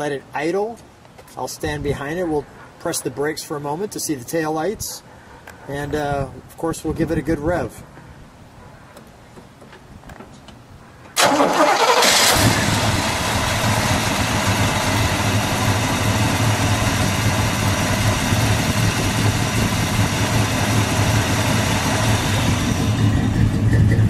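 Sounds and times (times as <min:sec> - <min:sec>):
car engine starting and idling: 0:11.2 - 0:24.0.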